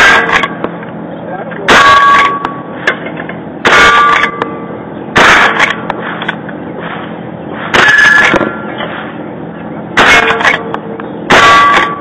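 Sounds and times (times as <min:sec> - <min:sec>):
steel target ringing: 0:00.0 - 0:00.8, 0:01.7 - 0:02.8, 0:03.6 - 0:06.0, 0:07.6 - 0:08.8, 0:09.9 - 0:12.0
rifle shots: 0:05.2 - 0:05.8.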